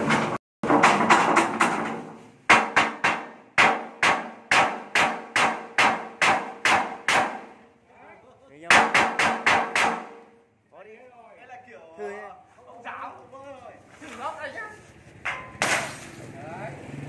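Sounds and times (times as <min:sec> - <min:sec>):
hammer knocking on glass: 0:00.0 - 0:07.6, 0:08.7 - 0:10.2.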